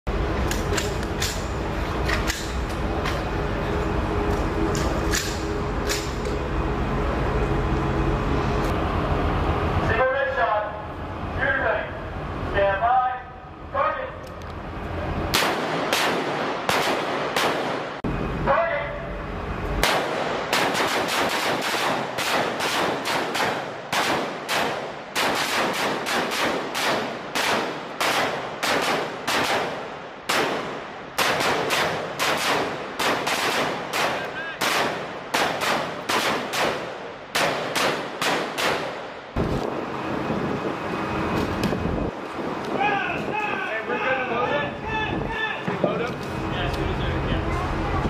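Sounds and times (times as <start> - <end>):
steady low rumble: 0.1 - 48.0
gunshots: 15.3 - 18.0, 19.8 - 39.2.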